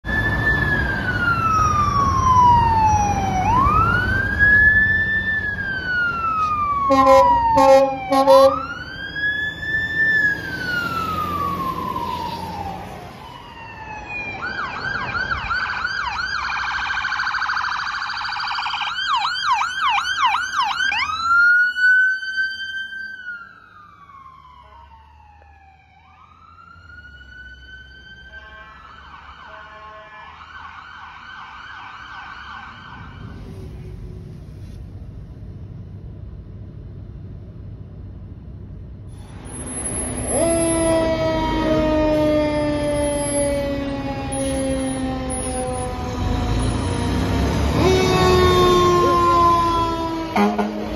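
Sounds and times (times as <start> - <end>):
emergency sirens wailing and yelping: 0.0 - 34.4, 39.2 - 50.9
low engine rumble: 33.0 - 50.0.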